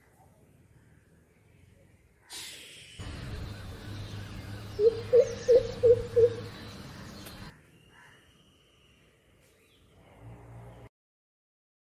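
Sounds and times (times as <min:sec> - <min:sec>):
steady background hiss: 0:00.0 - 0:09.9
bird deep low hoots: 0:04.7 - 0:06.6.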